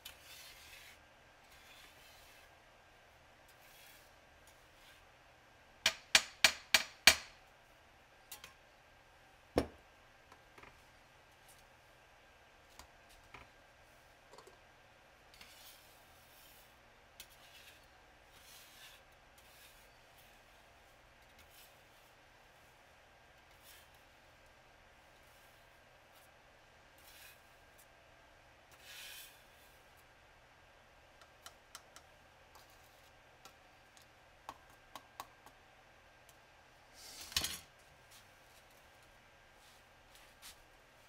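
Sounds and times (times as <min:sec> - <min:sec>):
scraper rubbing across glass: 0:00.0 - 0:02.5, 0:17.3 - 0:20.4.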